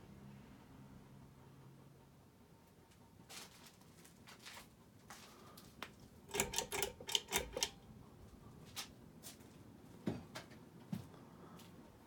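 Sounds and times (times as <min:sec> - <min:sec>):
ceiling fan running quietly: 0:00.0 - 0:12.0
pull-chain switch clicking: 0:06.3 - 0:07.8.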